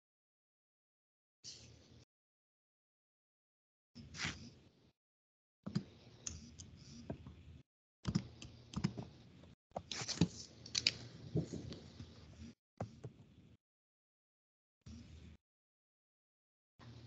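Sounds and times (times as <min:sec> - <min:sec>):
keyboard and mouse clicks: 0:05.7 - 0:07.3, 0:08.0 - 0:09.1.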